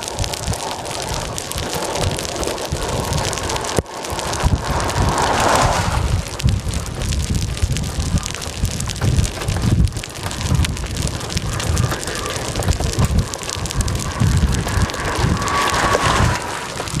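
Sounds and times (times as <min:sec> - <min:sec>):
dense steady crackle: 0:00.0 - 0:17.0
wind buffeting microphone: 0:00.0 - 0:17.0.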